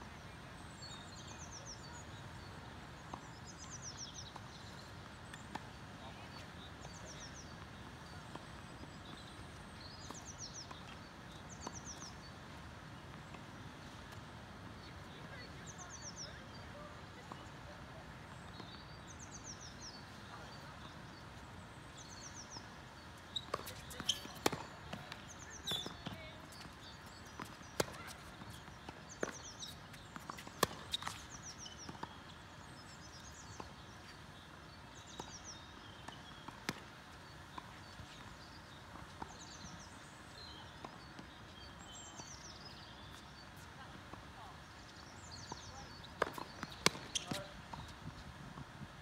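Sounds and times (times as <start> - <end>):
outdoor background hiss: 0.1 - 49.0
tennis balls bouncing on court: 0.8 - 49.0
tennis balls struck by rackets: 23.3 - 32.2, 45.5 - 48.2.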